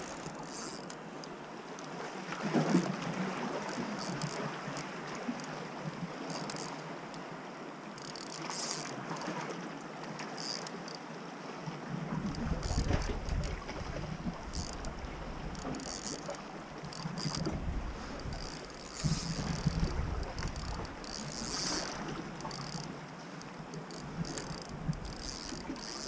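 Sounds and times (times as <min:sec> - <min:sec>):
fishing reel ticking: 0:00.0 - 0:01.9, 0:03.6 - 0:05.6, 0:06.3 - 0:07.2, 0:08.0 - 0:09.3, 0:10.2 - 0:11.0, 0:12.3 - 0:26.0
sea washing on rocks: 0:11.9 - 0:26.0.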